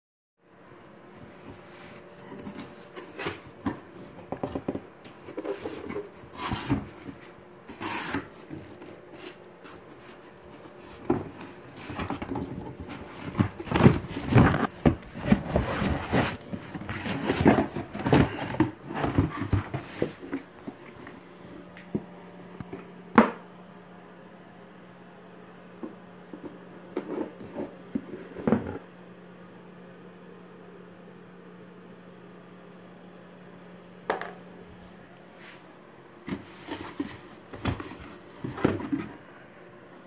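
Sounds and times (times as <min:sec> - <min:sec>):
cardboard box rustling and scraping: 0:01.2 - 0:21.3, 0:26.4 - 0:28.8, 0:36.2 - 0:39.3.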